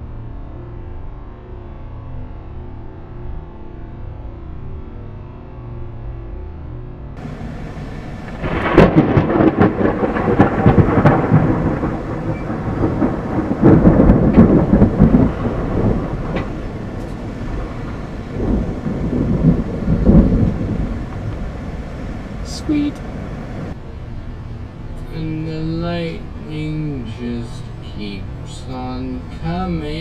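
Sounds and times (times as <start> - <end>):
thunder crack and rumble: 7.2 - 23.9.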